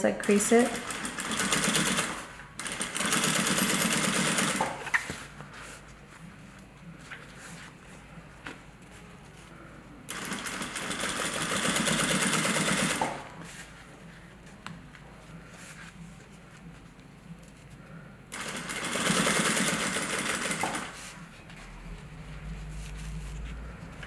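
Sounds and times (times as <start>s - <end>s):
sewing machine stitching: 0.2s - 4.8s, 18.3s - 21.0s.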